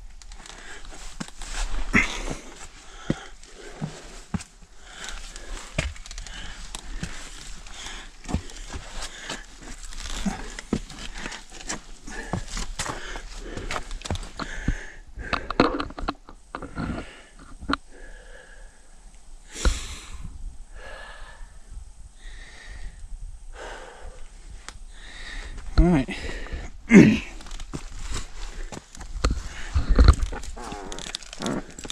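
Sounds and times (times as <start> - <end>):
person breathing hard: 0.4 - 16.0, 16.6 - 31.9
boots scuffing on rock: 1.0 - 14.4.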